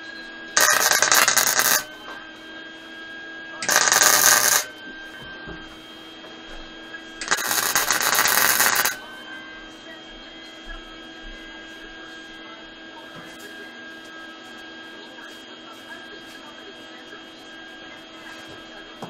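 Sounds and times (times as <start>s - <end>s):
steady hum: 0.3s - 6.2s, 6.8s - 18.3s
welding arc bursts: 0.6s - 1.9s, 3.6s - 4.7s, 7.2s - 9.0s.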